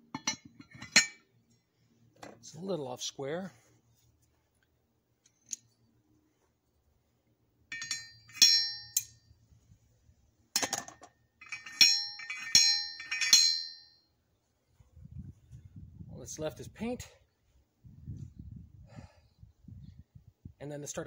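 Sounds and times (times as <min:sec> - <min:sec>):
steel parts clinking: 0:00.2 - 0:01.2, 0:07.7 - 0:09.3, 0:10.6 - 0:14.0.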